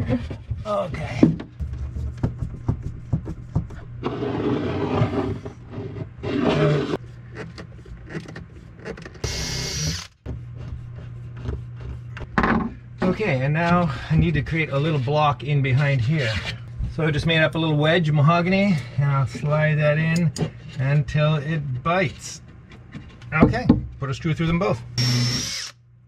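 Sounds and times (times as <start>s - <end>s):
power driver whirring: 9.2s - 10.2s, 25.0s - 25.8s.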